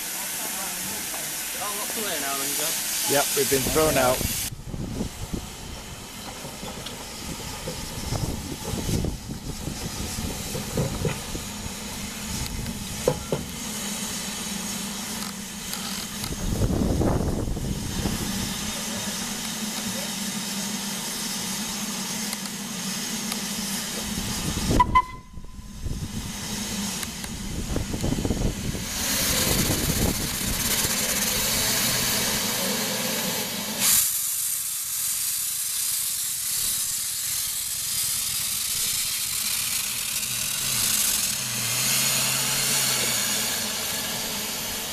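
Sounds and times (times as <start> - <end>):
steam exhaust beats: 0.0 - 44.9
steam locomotive hissing: 0.0 - 44.9
loud blip: 24.8 - 25.4.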